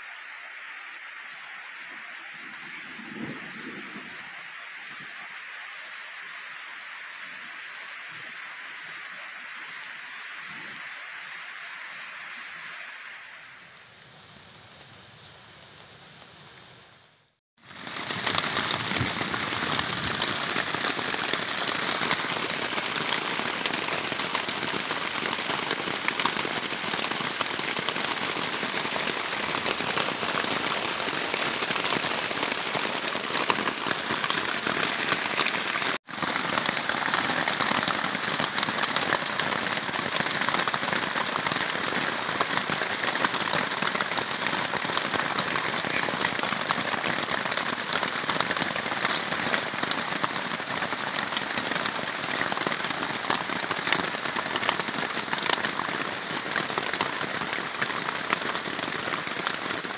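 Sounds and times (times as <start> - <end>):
heavy rain on a plastic tarp: 1.1 - 14.8, 15.6 - 59.9.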